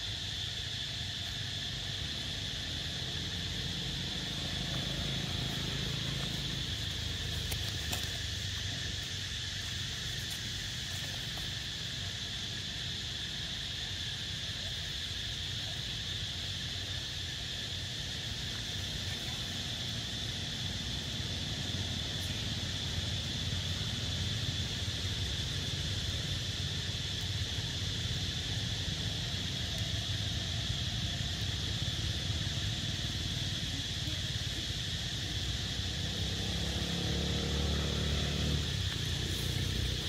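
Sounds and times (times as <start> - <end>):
high insect drone: 0.0 - 40.0
vehicle engine: 1.9 - 11.7, 19.6 - 40.0.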